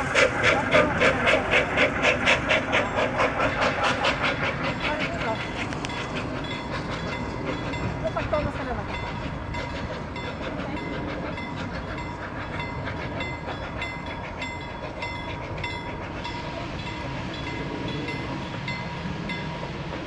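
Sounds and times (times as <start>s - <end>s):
train rumble: 0.0s - 20.0s
train wheels clicking over rail joints: 0.0s - 20.0s.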